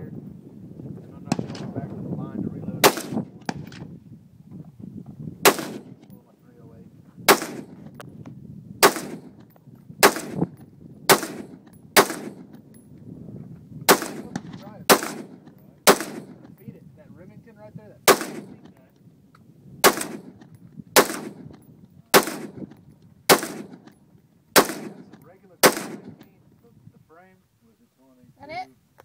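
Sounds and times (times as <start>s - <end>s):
rifle shots with echo: 1.3s - 1.7s, 2.8s - 3.8s, 5.4s - 6.2s, 7.3s - 7.9s, 8.8s - 12.6s, 13.9s - 16.6s, 18.0s - 18.8s, 19.8s - 24.0s, 24.6s - 26.3s.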